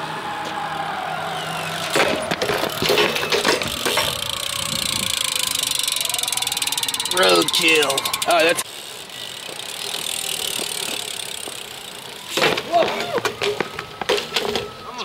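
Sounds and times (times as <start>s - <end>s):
bike clattering on asphalt: 1.7s - 14.8s
bike hub ratchet ticking: 2.6s - 12.3s.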